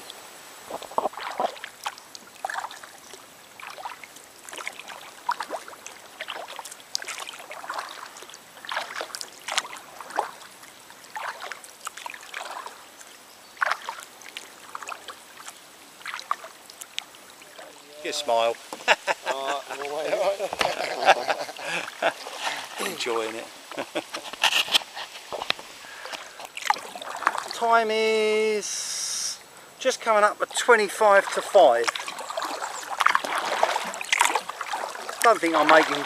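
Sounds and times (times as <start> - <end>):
kayak paddle splashing: 0.0 - 36.0.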